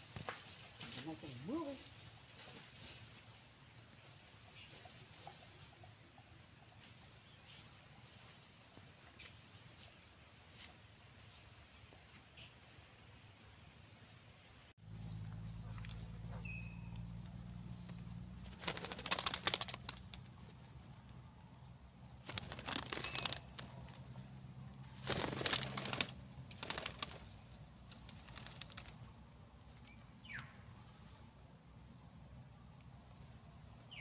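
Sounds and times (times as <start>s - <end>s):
bird wings flapping: 18.4s - 20.4s, 22.2s - 24.2s, 24.9s - 29.2s.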